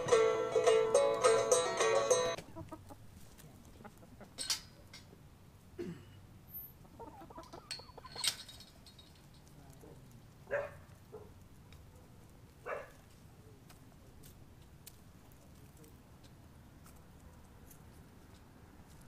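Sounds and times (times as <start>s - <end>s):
hens clucking: 2.2s - 4.5s, 6.8s - 8.3s.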